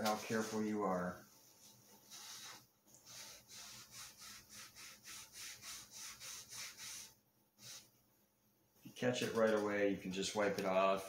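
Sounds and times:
paper towel rubbing on tube: 0.0 - 7.9.

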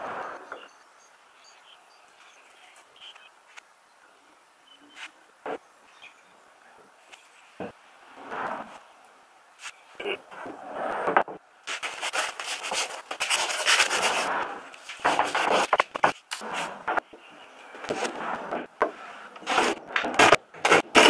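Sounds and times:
sandpaper scraping on wood: 11.7 - 17.0, 17.7 - 21.0.

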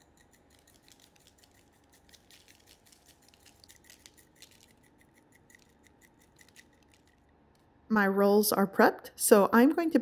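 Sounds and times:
seeds pattering from shaker: 0.0 - 7.3.

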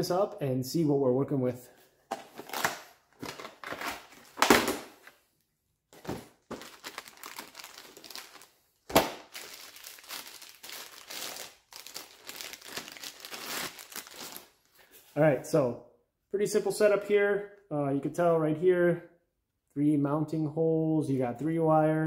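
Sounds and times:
plastic bag crinkling: 6.0 - 14.7.

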